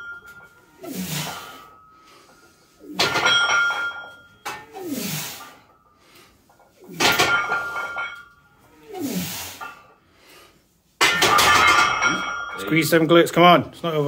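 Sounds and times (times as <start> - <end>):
metallic ring of barbell plates: 0.0 - 10.0, 11.0 - 13.0
forceful breaths of a lifter: 0.6 - 3.2, 4.0 - 10.8.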